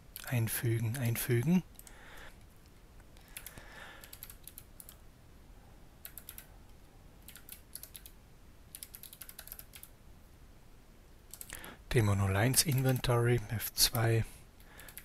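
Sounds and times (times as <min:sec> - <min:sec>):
typing on keyboard: 0:03.3 - 0:05.0, 0:06.0 - 0:06.5, 0:07.2 - 0:09.9, 0:11.3 - 0:11.6, 0:12.6 - 0:13.1, 0:14.8 - 0:15.0.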